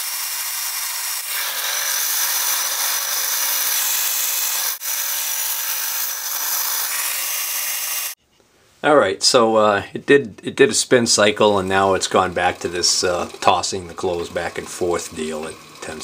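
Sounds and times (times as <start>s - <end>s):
shop vacuum hissing: 0.0s - 8.2s.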